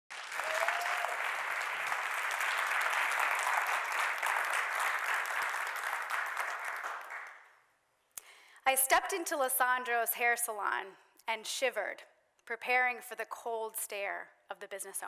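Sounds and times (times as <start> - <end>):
audience applauding: 0.1 - 7.6.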